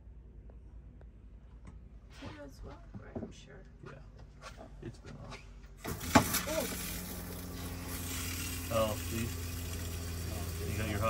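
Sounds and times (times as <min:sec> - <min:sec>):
tap water running: 0:05.8 - 0:11.0.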